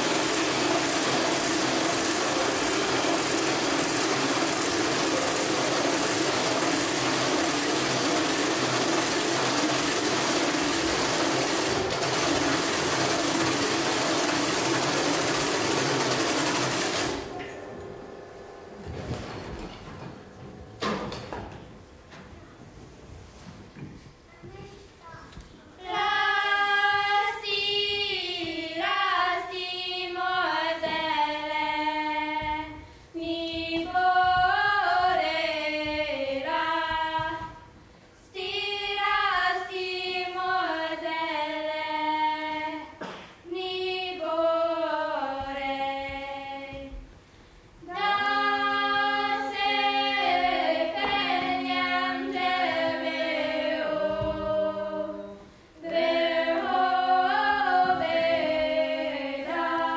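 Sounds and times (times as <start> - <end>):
women singing unaccompanied: 25.8 - 37.7, 38.3 - 47.2, 47.8 - 59.9.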